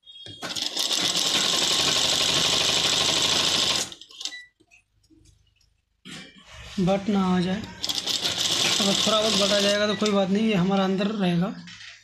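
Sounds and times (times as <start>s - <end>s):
sewing machine stitching: 0.4s - 4.3s, 7.8s - 10.1s.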